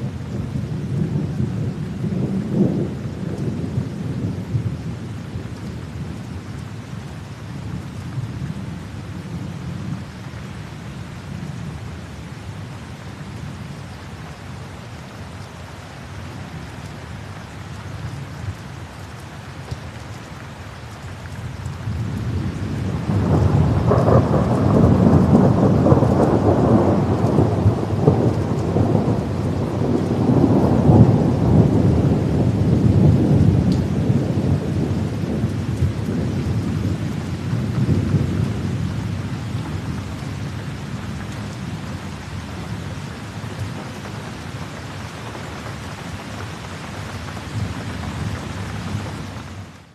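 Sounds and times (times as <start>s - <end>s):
steady rain: 0.0s - 49.9s
rolling thunder: 0.3s - 6.2s, 21.8s - 49.5s.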